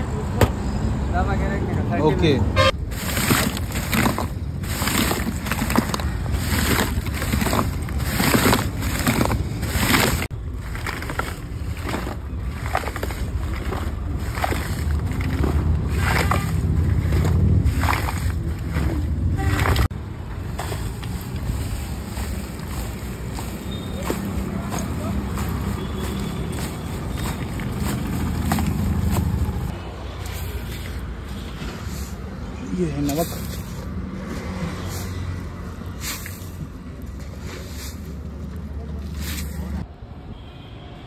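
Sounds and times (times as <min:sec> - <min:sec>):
ice water sloshing in metal tin: 0:02.8 - 0:19.9.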